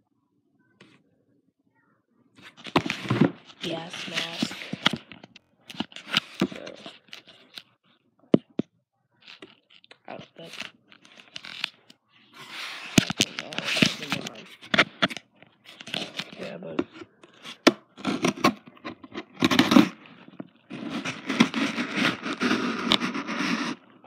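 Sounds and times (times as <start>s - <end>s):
blade scraping packing tape: 19.4s - 20.0s, 20.8s - 23.8s.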